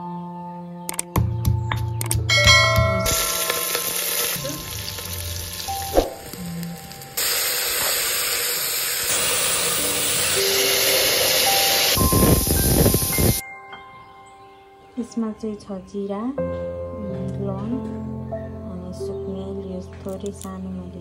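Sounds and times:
soft background music: 0:00.0 - 0:07.2, 0:09.8 - 0:21.0
food sizzling in a pot: 0:03.0 - 0:13.4.

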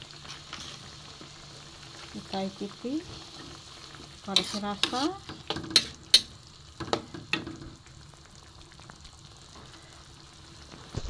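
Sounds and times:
sauce simmering: 0:00.0 - 0:10.9
metal spatula scraping wok: 0:00.1 - 0:01.1, 0:03.0 - 0:07.5.

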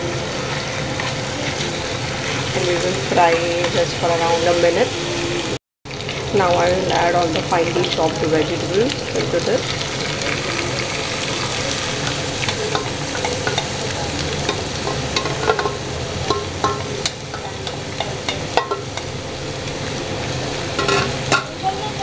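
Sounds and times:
vegetables sizzling in hot oil: 0:00.0 - 0:22.0
spatula scraping and tapping pan: 0:12.4 - 0:19.1, 0:20.8 - 0:21.6.

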